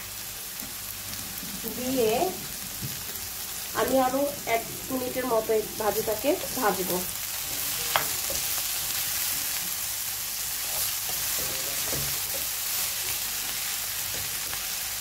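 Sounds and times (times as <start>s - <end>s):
vegetables sizzling in a wok: 0.0s - 15.0s
spatula scraping and tapping pan: 7.9s - 9.6s.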